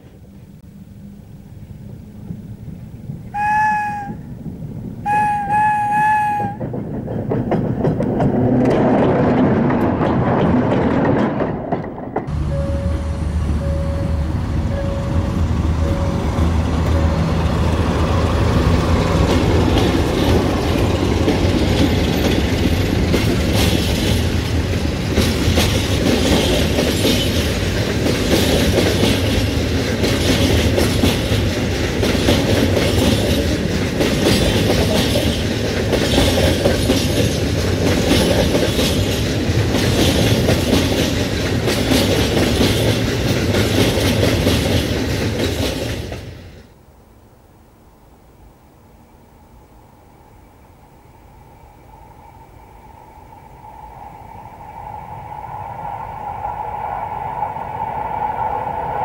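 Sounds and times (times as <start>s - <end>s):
locomotive diesel engine: 0.0s - 46.8s
train rumble: 0.0s - 59.0s
wheels clacking over rail joints: 4.0s - 46.8s.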